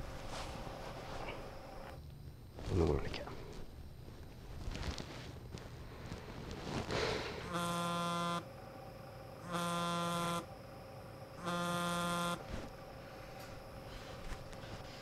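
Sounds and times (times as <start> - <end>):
buzzy phone ringtone: 7.5 - 8.5, 9.5 - 10.5, 11.4 - 12.5.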